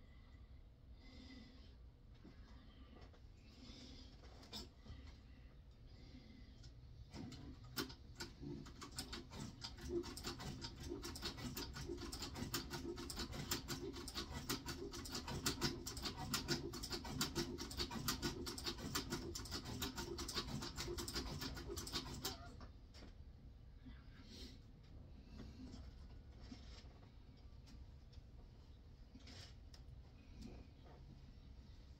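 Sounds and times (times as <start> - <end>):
stitching machine needle strokes: 7.1 - 22.6.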